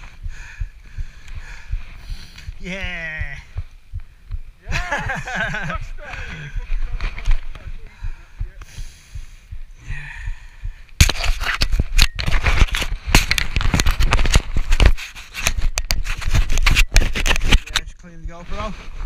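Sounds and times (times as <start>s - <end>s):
camera rubbing against clothing: 0.0s - 0.3s, 11.0s - 19.0s.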